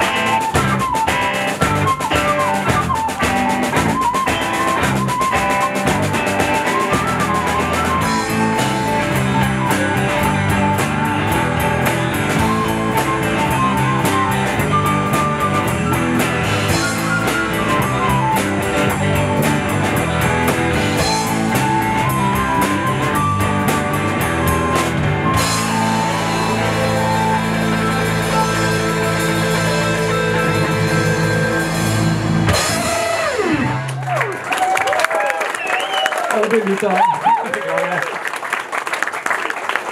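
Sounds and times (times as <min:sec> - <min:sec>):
flute: 0:00.0 - 0:33.9
drum kit: 0:00.0 - 0:34.8
electric guitars: 0:00.0 - 0:34.8
bass guitar: 0:00.0 - 0:34.9.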